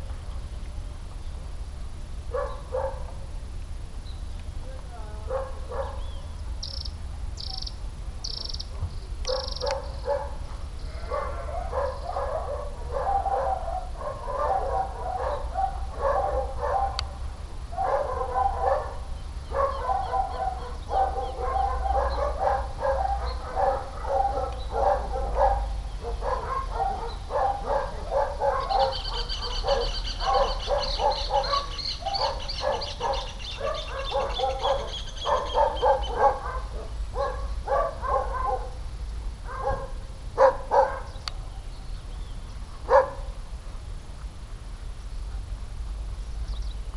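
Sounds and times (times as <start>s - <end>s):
dog barking: 2.3s - 3.2s, 5.3s - 6.0s, 9.3s - 10.4s, 11.0s - 17.2s, 17.8s - 38.8s, 39.5s - 41.2s, 42.9s - 43.3s
bird trilling: 6.0s - 8.7s, 28.5s - 36.3s.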